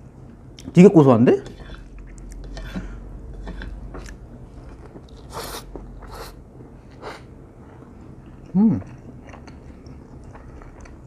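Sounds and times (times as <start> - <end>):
slurping noodles: 5.2 - 6.4
chewing: 6.9 - 11.0.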